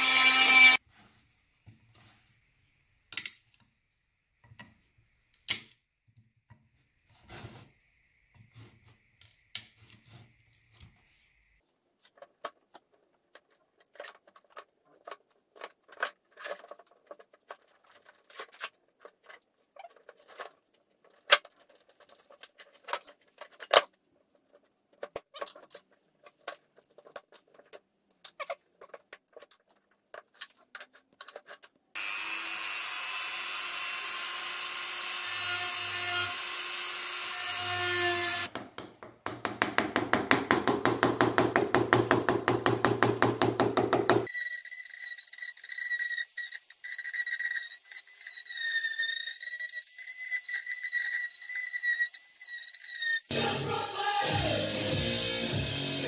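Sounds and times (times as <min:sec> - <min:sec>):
carving tool cutting wood: 0:00.0 - 0:00.8, 0:32.0 - 0:38.5.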